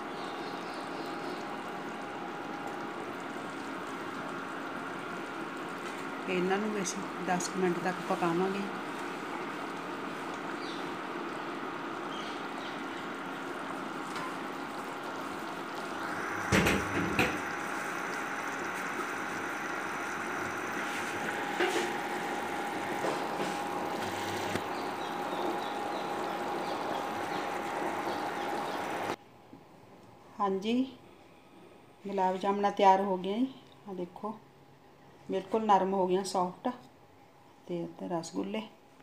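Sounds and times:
syrup boiling and bubbling: 0.0 - 29.2.

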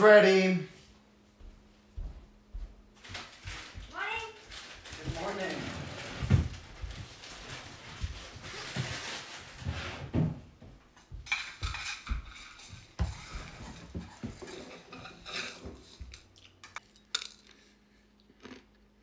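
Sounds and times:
cutlery and dishes clinking: 11.3 - 12.8, 13.6 - 17.6.

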